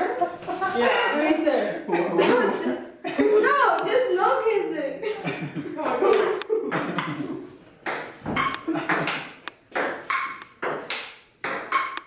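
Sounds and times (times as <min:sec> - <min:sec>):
table tennis ball hits: 0:06.1 - 0:07.2, 0:07.8 - 0:12.0.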